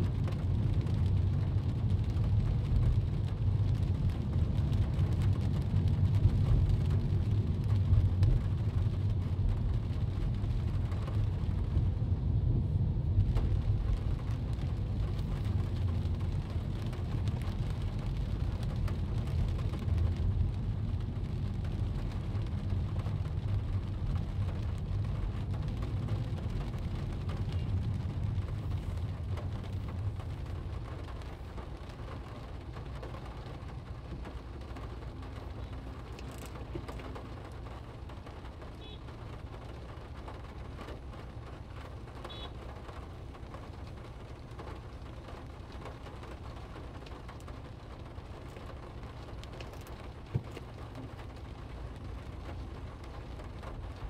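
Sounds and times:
car driving on wet road: 0.0s - 54.0s
rain on car windshield: 0.0s - 54.0s.

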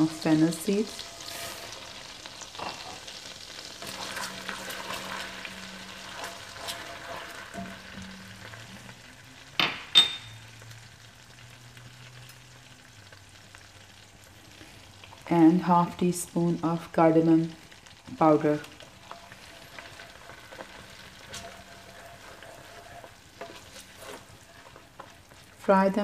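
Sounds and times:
seeds sizzling in butter: 0.0s - 26.0s
spoon clinking against pan: 9.9s - 10.4s.

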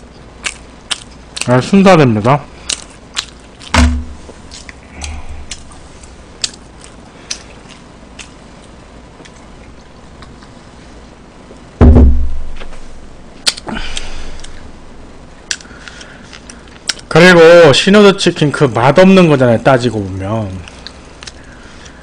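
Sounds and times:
low thump: 3.7s - 4.2s, 11.8s - 12.6s.

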